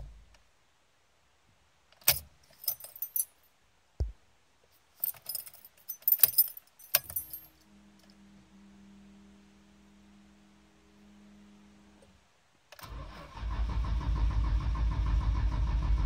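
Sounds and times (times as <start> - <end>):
faint electrical hum: 0.0 - 12.8
keys jangling: 2.0 - 3.4, 4.9 - 7.6.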